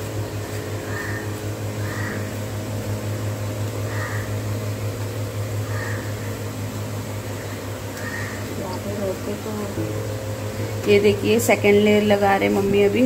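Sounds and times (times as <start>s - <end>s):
steady low hum: 0.0s - 13.0s
bird calling: 0.6s - 2.5s, 3.8s - 4.7s, 5.5s - 6.6s, 7.2s - 9.5s.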